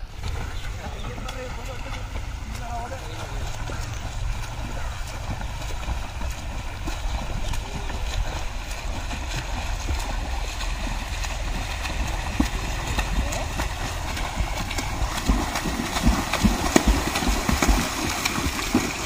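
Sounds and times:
river water rushing: 0.0s - 19.0s
wind rumble on microphone: 0.0s - 19.0s.

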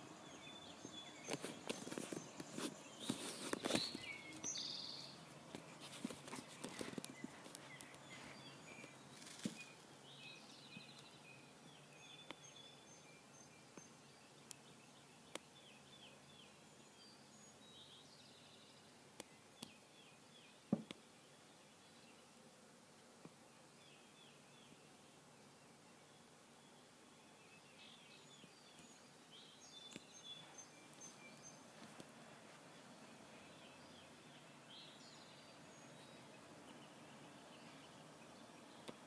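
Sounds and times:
songbirds calling: 0.0s - 39.0s
rustling handling noise: 1.2s - 4.5s, 5.2s - 9.7s.

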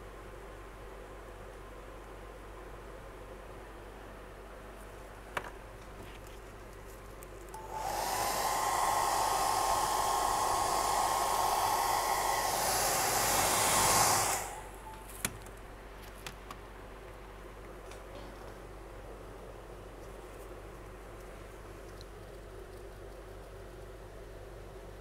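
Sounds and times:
hair dryer blowing with whine: 7.6s - 15.0s.

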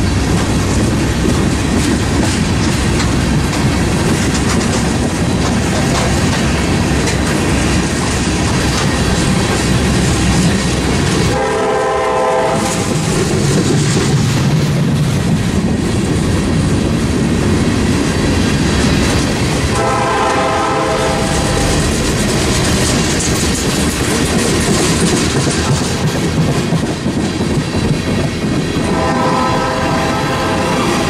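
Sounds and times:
freight train rumbling: 0.0s - 31.0s
wheels clacking over rail joints: 0.0s - 31.0s
locomotive horn: 11.3s - 13.0s, 19.7s - 21.8s, 28.8s - 31.0s.

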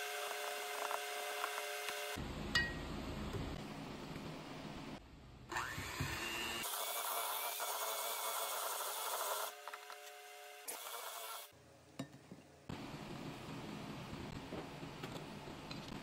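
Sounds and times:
electric hand mixer running: 5.5s - 9.6s.

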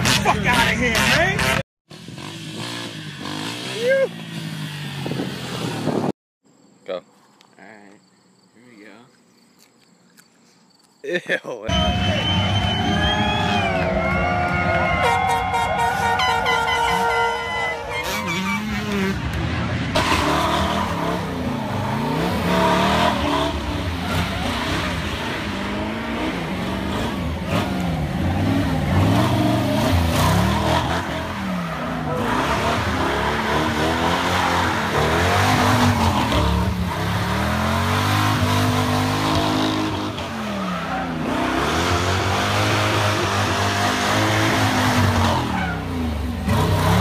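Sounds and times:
tyres squealing on asphalt: 11.7s - 19.2s, 26.9s - 37.3s, 39.0s - 47.0s
car engine revving: 17.9s - 47.0s.

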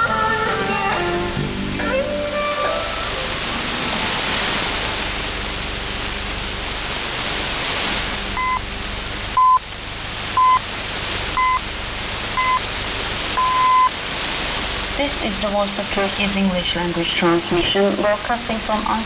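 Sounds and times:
shortwave radio hiss and static: 0.0s - 19.0s
time signal pips: 8.4s - 8.7s, 9.4s - 9.7s, 10.4s - 10.6s, 11.4s - 11.6s, 12.4s - 12.6s, 13.4s - 13.9s.

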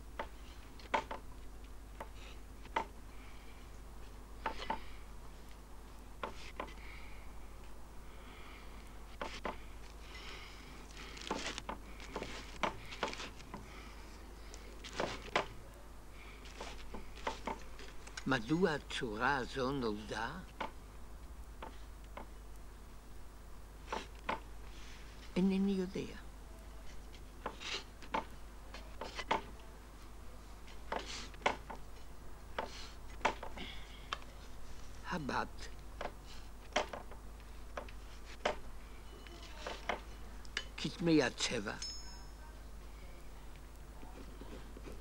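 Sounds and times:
low steady hum: 0.0s - 45.0s.

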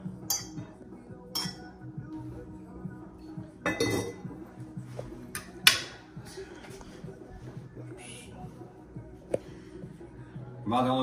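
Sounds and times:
background music: 0.0s - 11.0s
metal fork clinking against pot: 0.3s - 0.6s, 1.3s - 1.7s
pot lid clattering: 3.7s - 4.2s.

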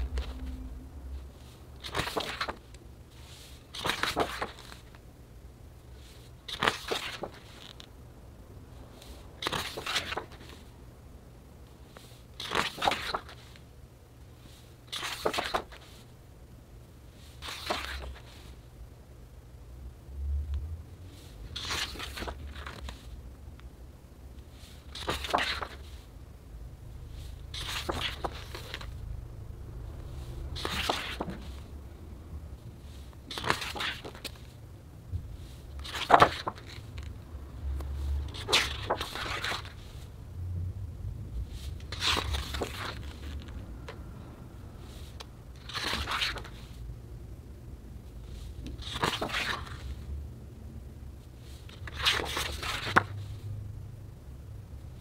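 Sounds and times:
book pages turning: 0.0s - 0.6s, 1.3s - 5.0s, 6.0s - 7.9s, 9.1s - 10.7s, 11.9s - 13.6s, 14.5s - 16.1s, 17.3s - 18.6s, 21.2s - 23.1s, 24.5s - 26.0s, 27.2s - 28.9s, 30.2s - 31.7s, 32.8s - 34.6s, 35.4s - 37.2s, 37.9s - 40.1s, 41.4s - 44.0s, 44.8s - 46.8s, 48.3s - 50.0s, 51.4s - 53.2s
low steady hum: 0.0s - 55.0s.

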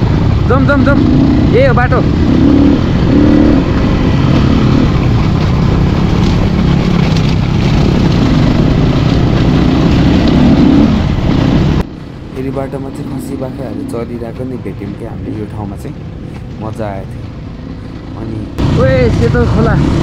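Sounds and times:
motorcycle engine running: 0.0s - 11.9s
wind rush on microphone: 0.0s - 12.2s.

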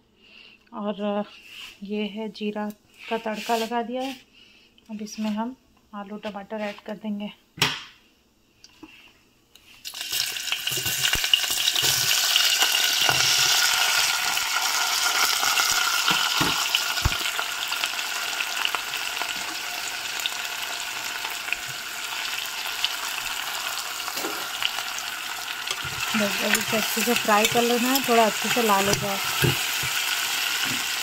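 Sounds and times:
food sizzling in hot oil: 9.8s - 31.0s.

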